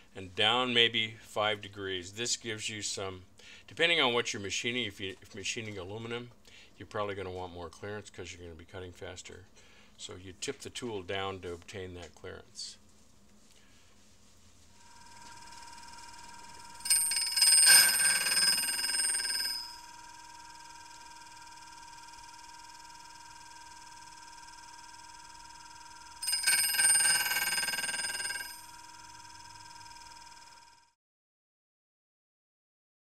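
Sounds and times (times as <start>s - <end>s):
bench grinder whining: 14.8s - 30.8s
grinding metal high-pitched ringing: 14.8s - 30.8s.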